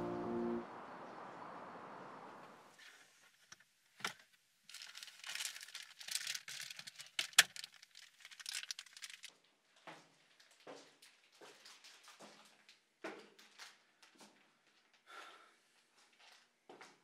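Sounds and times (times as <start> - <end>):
paper rustling and crinkling: 2.8 - 9.3, 10.5 - 12.7.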